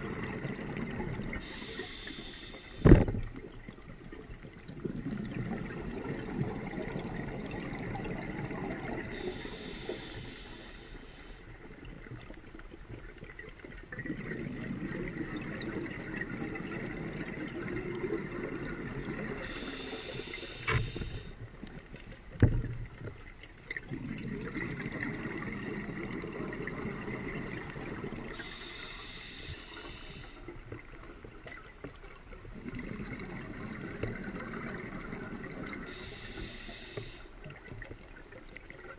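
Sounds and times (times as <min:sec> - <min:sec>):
exhaled air bubbling: 0:00.0 - 0:38.9
regulator inhalation hiss: 0:01.4 - 0:02.9, 0:09.2 - 0:11.4, 0:19.4 - 0:21.4, 0:28.4 - 0:30.4, 0:35.9 - 0:37.3.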